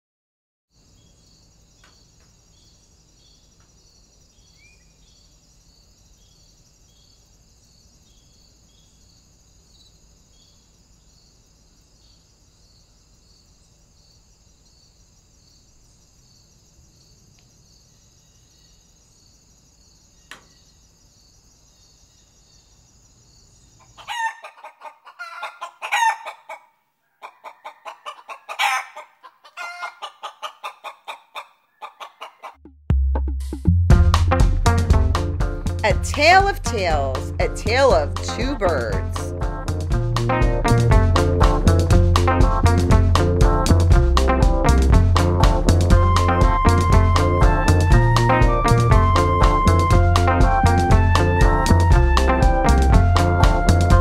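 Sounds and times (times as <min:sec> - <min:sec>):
insects trilling: 0:00.8 - 0:26.2
chicken clucking and squawking: 0:23.8 - 0:32.6.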